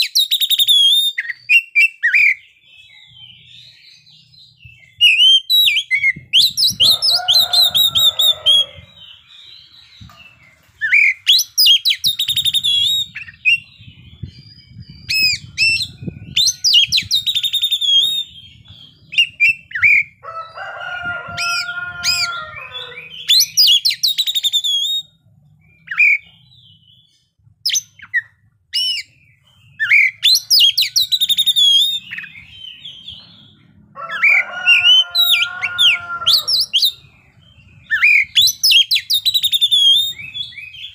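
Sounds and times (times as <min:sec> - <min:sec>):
bird singing whistled phrases: 0:00.0 - 0:03.0, 0:15.1 - 0:18.5, 0:22.8 - 0:25.2, 0:29.8 - 0:33.1, 0:37.9 - 0:40.9.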